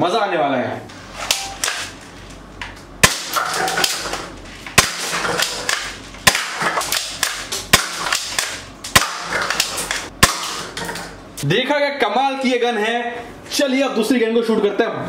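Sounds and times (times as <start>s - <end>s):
toy gun firing cracks: 4.8s - 10.7s.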